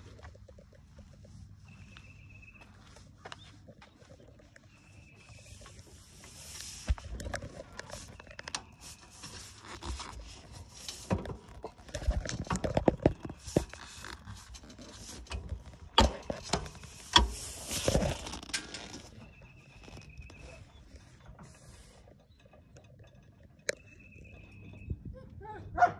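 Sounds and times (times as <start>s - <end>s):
clicks knocks and scraping on mower: 5.6s - 24.6s.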